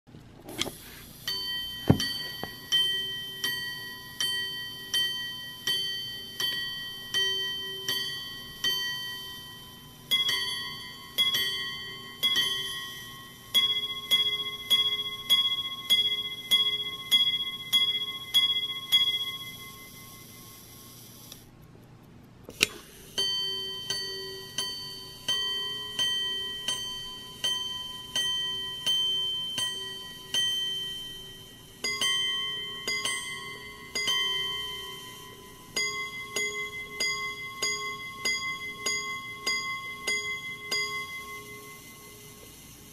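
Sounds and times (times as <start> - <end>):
pocket watch gongs striking: 1.2 - 21.3, 22.5 - 42.9.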